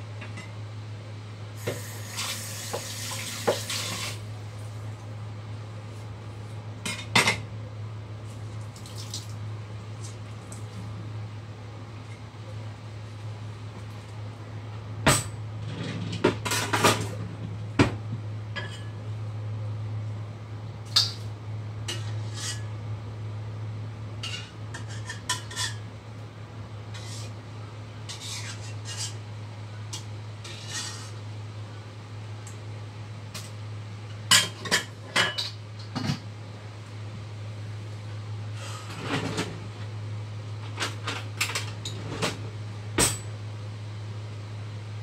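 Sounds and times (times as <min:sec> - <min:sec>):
steady low hum: 0:04.0 - 0:45.0.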